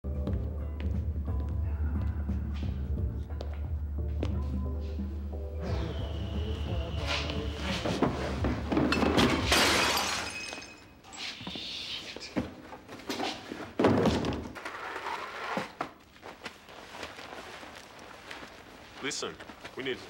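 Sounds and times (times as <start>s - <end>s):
music: 0.0s - 9.5s
loud crash of breaking: 8.9s - 10.7s
thuds and knocks: 13.8s - 14.6s.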